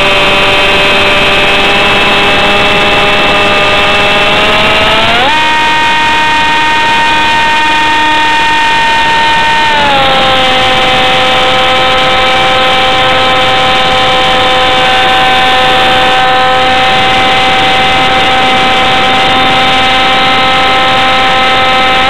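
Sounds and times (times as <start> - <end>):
model jet motor whine: 0.0 - 22.0.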